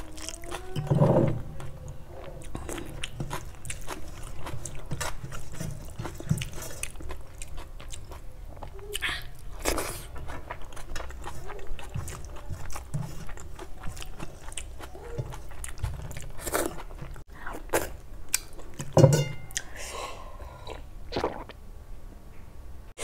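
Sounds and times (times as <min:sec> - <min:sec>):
chewing and lip smacking: 0:02.3 - 0:19.7
person drinking water: 0:20.6 - 0:21.6.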